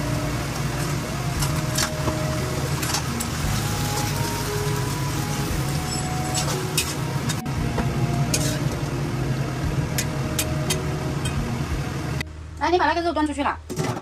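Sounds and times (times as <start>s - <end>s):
greens sizzling in a wok: 0.0s - 7.4s
metal spatula scraping wok: 8.3s - 8.8s.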